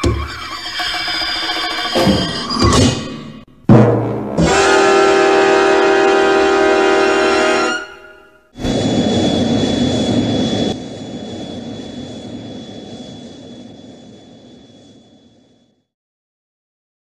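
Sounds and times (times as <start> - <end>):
thin high whine: 7.7 - 15.8
jet-like rushing roar: 8.6 - 15.8.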